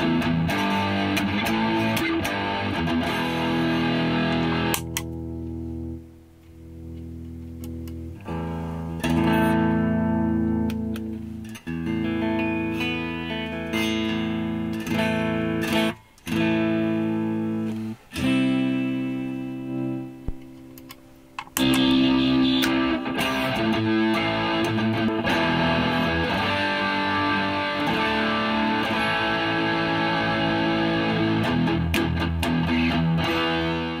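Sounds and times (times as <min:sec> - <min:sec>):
clean electric guitar chords: 0:00.0 - 0:06.1, 0:06.7 - 0:34.0.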